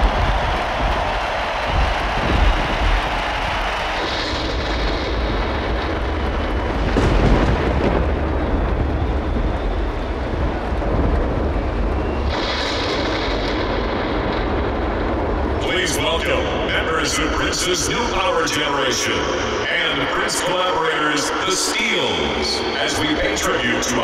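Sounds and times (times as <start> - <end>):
low rumble: 0.0 - 20.3
stadium crowd roaring: 0.0 - 24.0.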